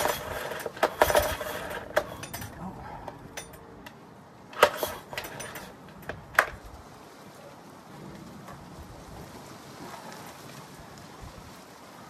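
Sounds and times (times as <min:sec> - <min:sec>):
outboard engine turning over: 0:00.0 - 0:03.6, 0:04.5 - 0:06.6
recoil starter cord pulled: 0:00.0 - 0:06.7.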